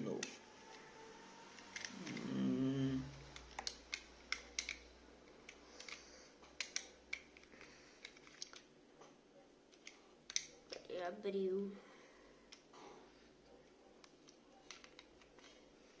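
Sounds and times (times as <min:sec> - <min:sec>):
person humming: 0:01.9 - 0:03.2.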